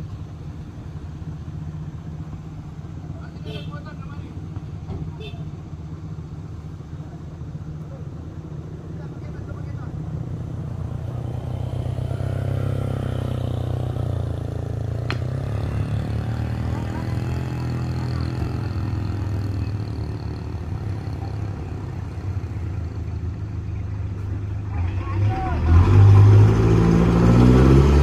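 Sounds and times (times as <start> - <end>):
truck diesel engines rumbling: 0.0 - 28.0
motorcycle riding past: 9.8 - 22.9.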